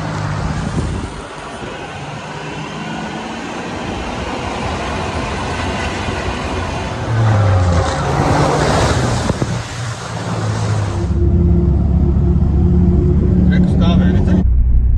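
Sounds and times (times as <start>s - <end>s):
water rushing and splashing: 0.0s - 11.6s
vehicle engine running: 10.5s - 14.9s.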